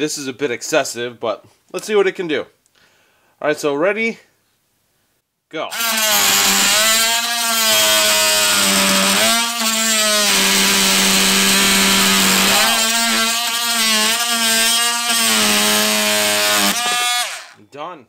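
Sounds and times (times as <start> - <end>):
oscillating tool cutting wood: 5.7 - 17.6.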